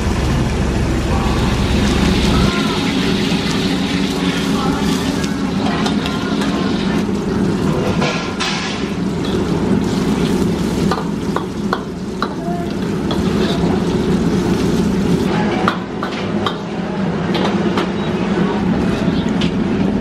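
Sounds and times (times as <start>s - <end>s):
oil sizzling and bubbling: 0.0s - 17.7s
low roar of wok burner: 0.0s - 20.0s
ladle scraping and knocking wok: 5.4s - 15.3s.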